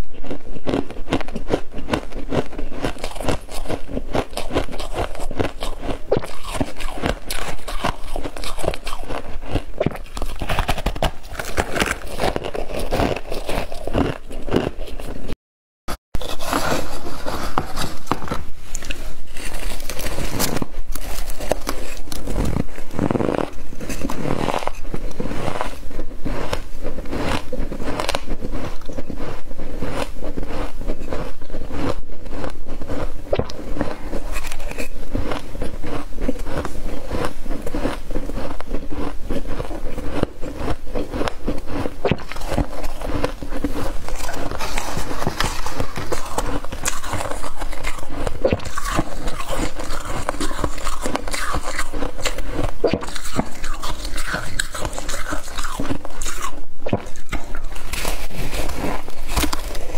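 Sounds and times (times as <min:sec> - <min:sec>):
frost being chewed: 0:00.0 - 0:15.4, 0:16.2 - 0:59.9
metal spoon scraping frost: 0:16.2 - 0:59.9.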